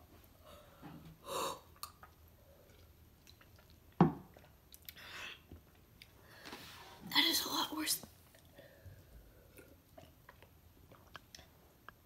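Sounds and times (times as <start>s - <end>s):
person chewing: 1.7s - 5.0s, 9.3s - 11.8s.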